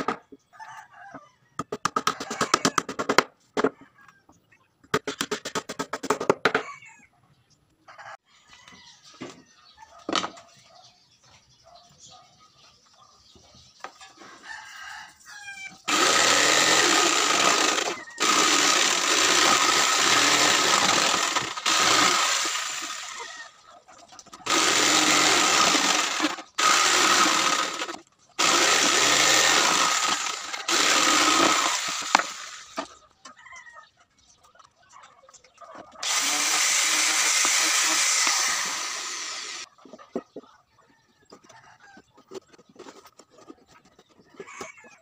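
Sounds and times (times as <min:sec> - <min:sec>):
rooster crowing: 0:07.9 - 0:09.1, 0:14.3 - 0:15.8
power tool cutting plywood: 0:15.9 - 0:23.4, 0:24.4 - 0:32.9, 0:36.0 - 0:39.7.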